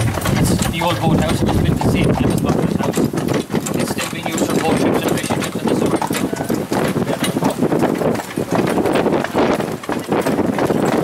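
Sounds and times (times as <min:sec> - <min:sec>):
continuous rumble: 0:00.0 - 0:04.2
horse hooves clip-clopping on road: 0:00.0 - 0:11.0.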